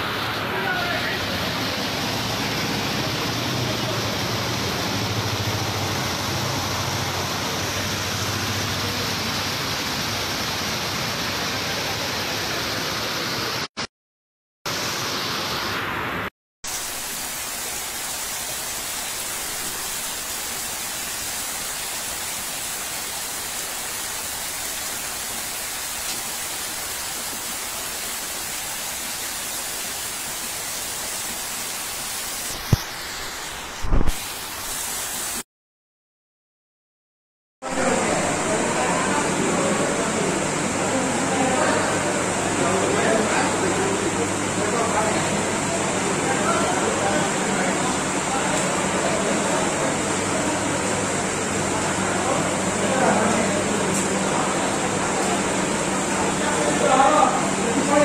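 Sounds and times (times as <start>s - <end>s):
heavy rain: 0.0s - 13.8s, 14.7s - 35.4s, 37.6s - 58.0s
water running: 16.7s - 35.4s.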